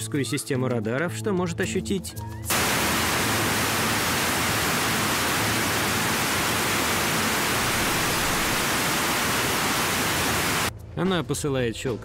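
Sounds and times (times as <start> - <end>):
steady static hiss: 2.5 - 10.7.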